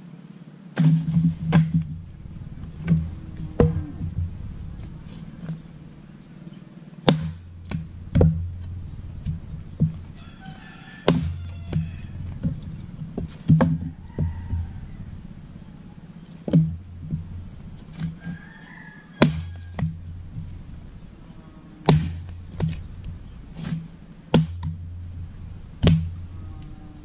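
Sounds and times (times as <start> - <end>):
axe chopping firewood: 0.8 - 5.7, 7.1 - 15.0, 16.4 - 18.5, 19.2 - 20.5, 21.8 - 26.3
rooster crowing: 1.9 - 6.2, 9.9 - 16.4, 17.2 - 23.4, 25.4 - 27.0.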